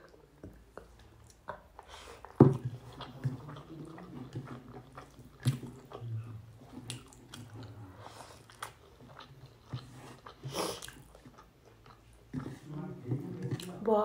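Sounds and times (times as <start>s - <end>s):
close chewing and eating: 0.0s - 14.0s.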